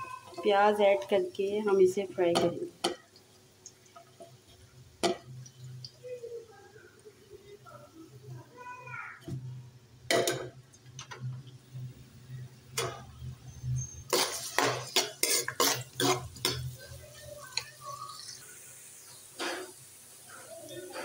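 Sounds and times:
onions sizzling in hot oil: 0.0 - 21.0
spoon knocking on metal pan: 2.3 - 3.1.

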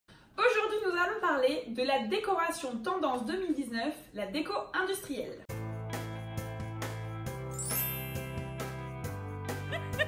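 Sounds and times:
intro jingle music: 5.5 - 10.0
rising sparkly shimmer: 7.4 - 9.0.

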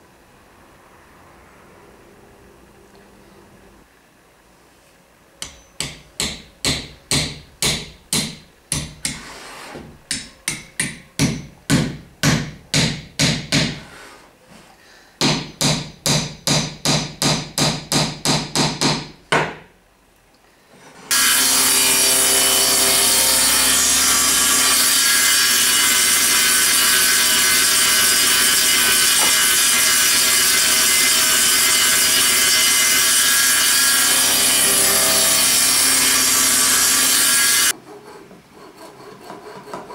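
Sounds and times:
hammer striking chisel: 5.4 - 9.3, 10.1 - 13.8, 15.2 - 19.7, 21.1 - 37.7
table saw running: 21.1 - 37.7.

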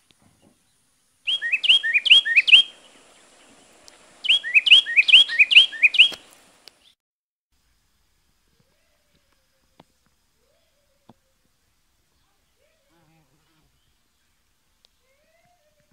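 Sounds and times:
songbird whistling: 1.3 - 3.6, 4.2 - 7.0.

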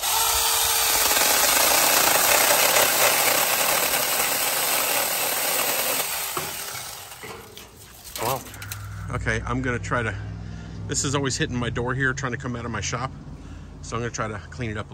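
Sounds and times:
chainsaw cutting branch: 0.0 - 8.8.

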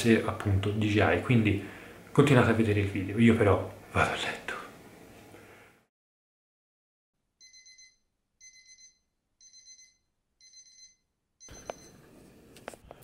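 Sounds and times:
electronic alarm beeping: 7.4 - 12.0.

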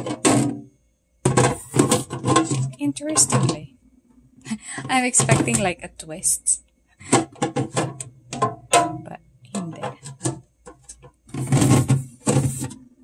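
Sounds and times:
plastic bin clicking and knocking: 1.2 - 3.6, 7.1 - 9.0, 9.6 - 12.8
plastic rubbing and scraping: 1.2 - 3.7, 7.1 - 8.8, 9.5 - 13.0.

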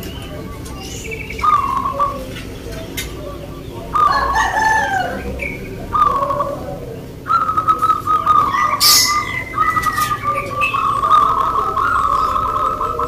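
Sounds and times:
doves cooing: 0.0 - 13.0
fast staccato bird trill: 7.2 - 13.0.

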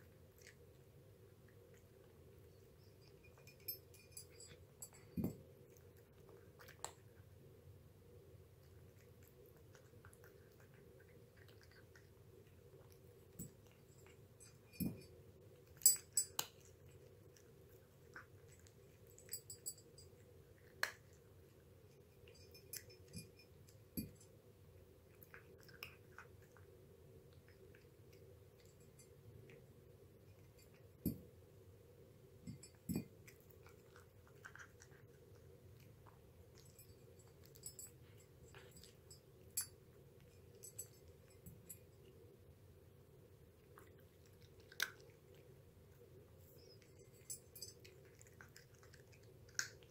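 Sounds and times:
cat chewing: 0.0 - 49.9
steady low hum: 0.0 - 49.9
clinks against ceramic bowl: 3.0 - 5.4, 13.3 - 15.2, 15.8 - 16.5, 22.2 - 24.3, 32.4 - 33.2.

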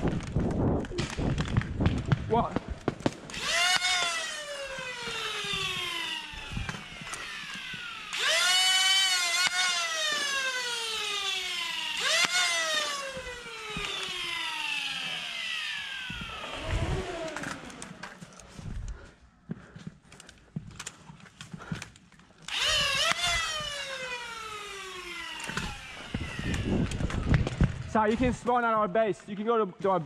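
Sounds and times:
flywheel motors whining: 3.3 - 19.0, 22.4 - 27.8.

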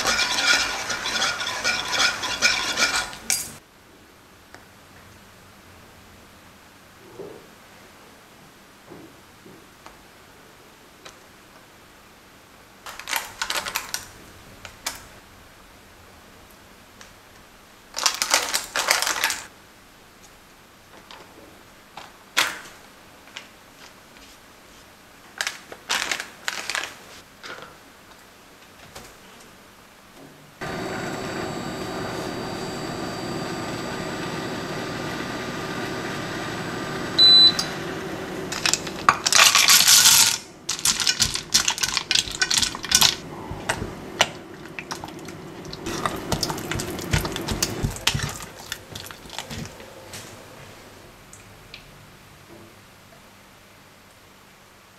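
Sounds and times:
electric hob humming: 0.0 - 3.3, 30.6 - 39.4, 40.6 - 51.2
spatula scraping and tapping: 0.0 - 3.6, 40.8 - 49.7
spatula stirring in saucepan: 0.0 - 3.6, 40.8 - 49.8
short high beep: 37.2 - 37.7.

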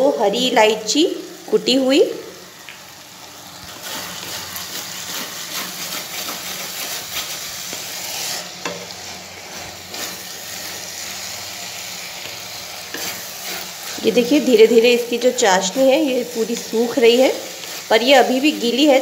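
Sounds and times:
sugar syrup sizzling: 0.0 - 19.0
wooden spatula scraping a pan: 3.7 - 19.0.

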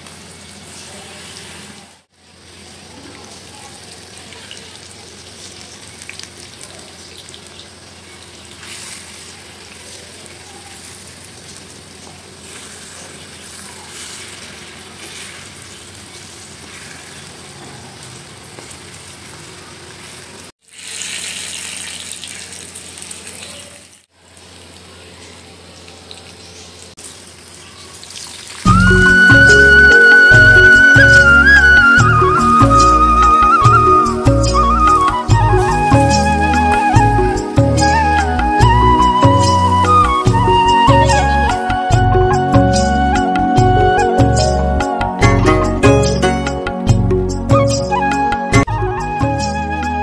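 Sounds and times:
hot oil sizzling and crackling: 0.0 - 38.0.

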